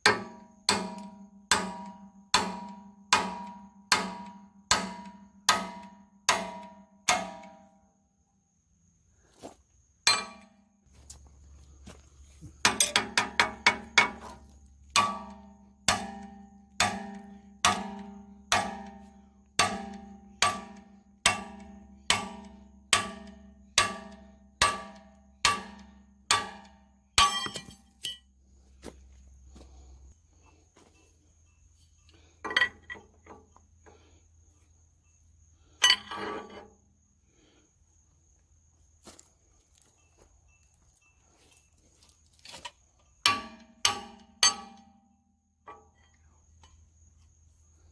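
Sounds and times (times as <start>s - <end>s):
ringing metal-on-metal hammer blows: 0.0s - 7.8s, 10.0s - 10.6s, 12.6s - 28.3s, 43.2s - 46.2s.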